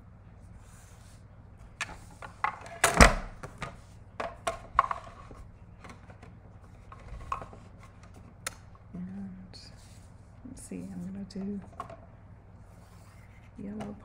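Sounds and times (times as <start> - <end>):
plastic plates knocking and clacking: 3.5 - 6.3.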